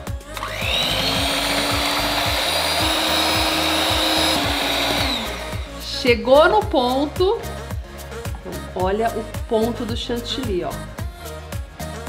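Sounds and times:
background music beat: 0:00.0 - 0:12.0
electric hand mixer whining: 0:00.3 - 0:05.9.

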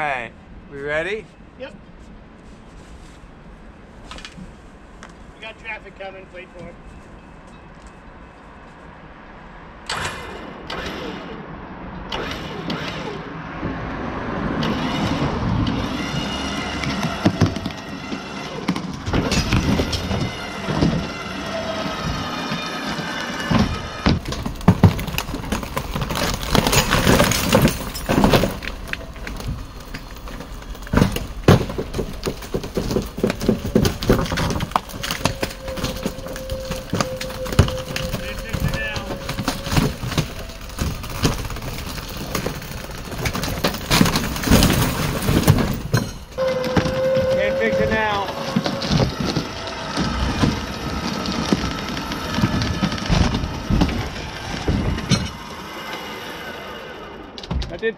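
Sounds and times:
metal and wood creaking: 0:09.8 - 0:57.9
structure cracking and crashing: 0:14.5 - 0:57.9.

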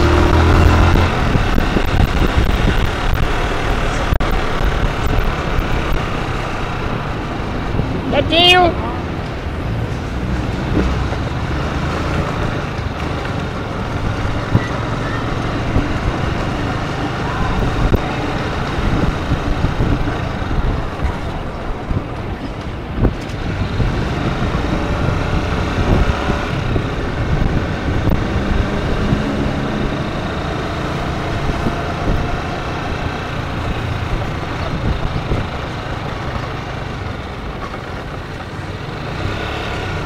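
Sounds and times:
wind over microphone: 0:00.0 - 0:37.2.

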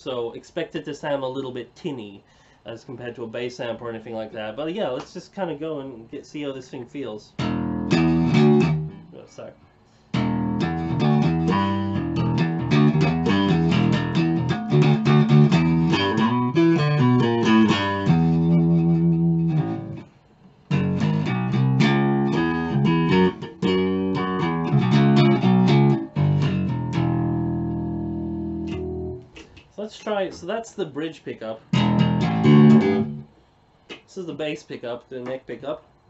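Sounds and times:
electric bass plucked notes: 0:07.4 - 0:09.2, 0:10.1 - 0:20.1, 0:20.7 - 0:29.6, 0:31.6 - 0:33.3.

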